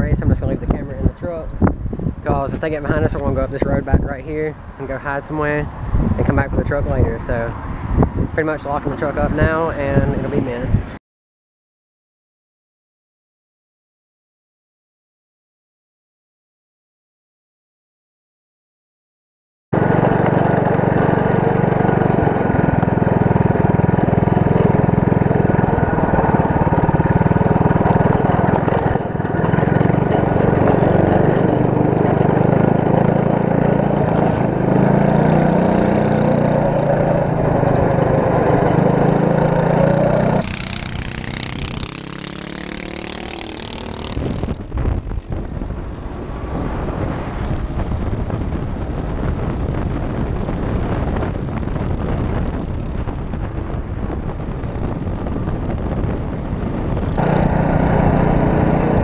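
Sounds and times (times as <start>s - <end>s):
wind rushing across microphone: 0.0s - 11.0s, 19.8s - 59.0s
go-kart engine running: 19.8s - 44.6s, 57.1s - 59.0s
dirt bike engine: 19.8s - 45.4s, 57.0s - 59.0s.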